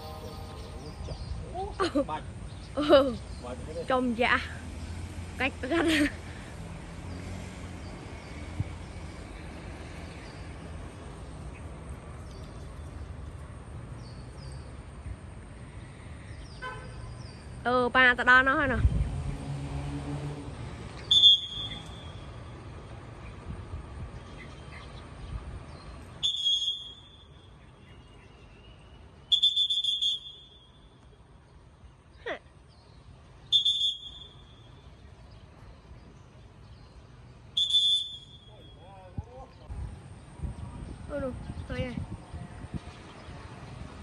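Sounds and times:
high bird chirps: 0.0s - 1.8s.

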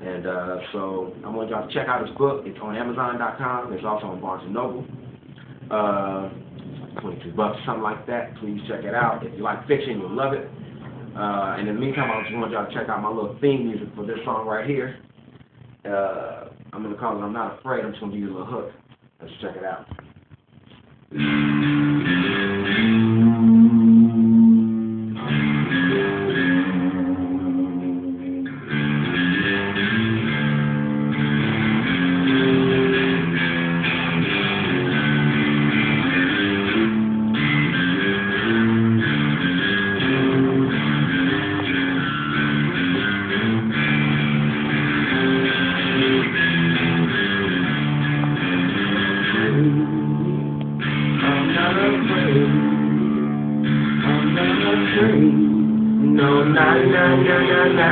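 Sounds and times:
electric guitar playing: 2.9s - 12.9s, 21.1s - 57.9s.

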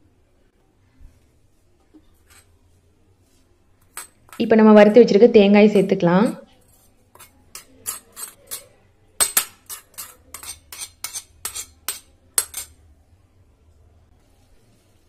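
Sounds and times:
spoon clinking on metal pan: 7.2s - 12.8s.

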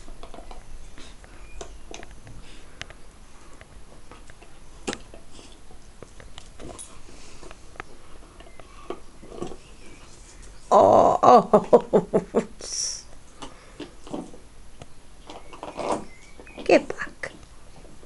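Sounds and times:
dogs sniffing and mouthing: 0.0s - 10.7s.

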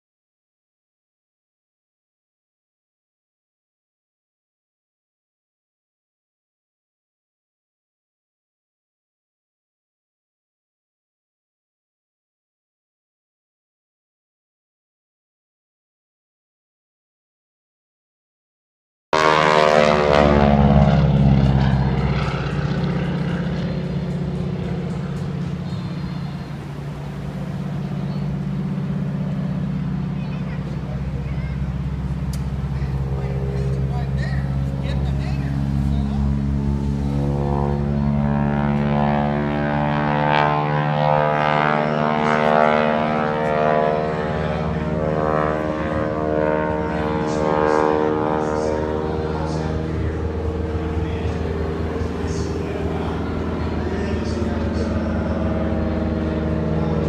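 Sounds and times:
propeller plane engine passing low: 19.2s - 57.0s.

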